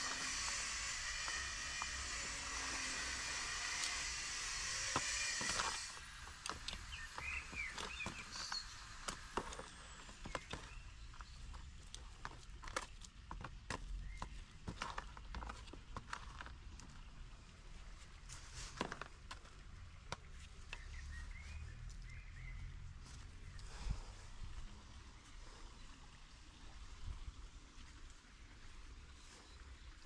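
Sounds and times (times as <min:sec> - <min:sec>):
steady hiss: 0:00.0 - 0:10.1
hand tools scraping soil in bucket: 0:00.0 - 0:16.7, 0:18.2 - 0:19.5.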